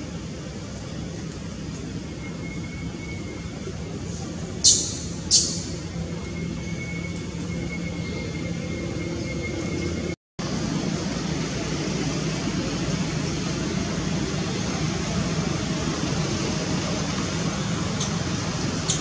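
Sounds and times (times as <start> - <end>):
faint high whine: 0.0 - 18.6
outdoor background noise: 0.0 - 19.0
sharp high squeak: 2.1 - 3.7, 4.6 - 10.2.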